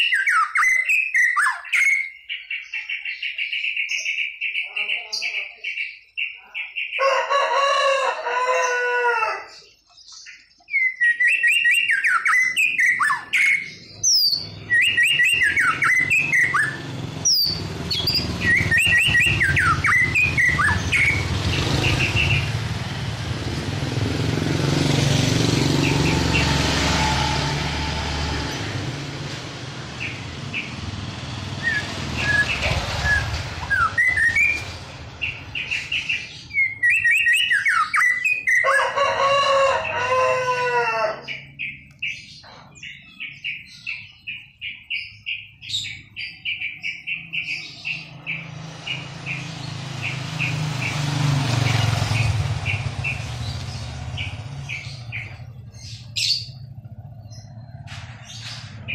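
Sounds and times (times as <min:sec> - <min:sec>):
bird whistling song: 0:00.0 - 0:07.0, 0:10.1 - 0:22.5, 0:31.5 - 0:38.8
rooster crowing: 0:07.0 - 0:09.6, 0:38.5 - 0:41.4
passing motor vehicle: 0:11.6 - 0:44.4, 0:45.3 - 0:58.9.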